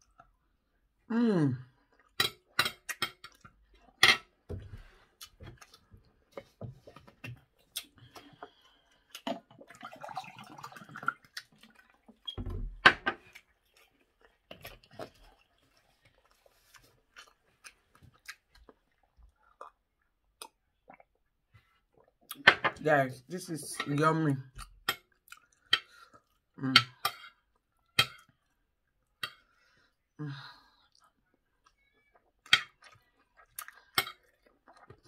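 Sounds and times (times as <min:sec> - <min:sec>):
chewing and mouth sounds: 0:01.7 - 0:04.0, 0:05.0 - 0:09.8, 0:13.2 - 0:22.4, 0:24.4 - 0:29.6, 0:30.8 - 0:35.0.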